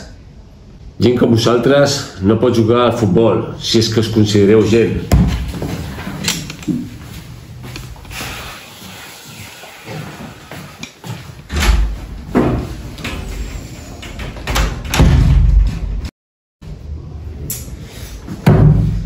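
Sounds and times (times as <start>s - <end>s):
thuds and knocks of people moving: 5.0s - 8.0s, 9.9s - 13.3s, 14.1s - 16.1s, 18.3s - 19.0s
door slamming: 5.1s - 6.5s, 14.0s - 16.1s, 18.4s - 19.0s.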